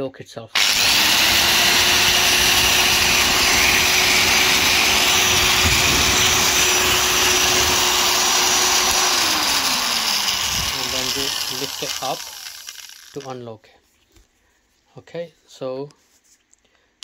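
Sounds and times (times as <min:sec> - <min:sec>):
electric drill motor whine: 0:00.6 - 0:13.2.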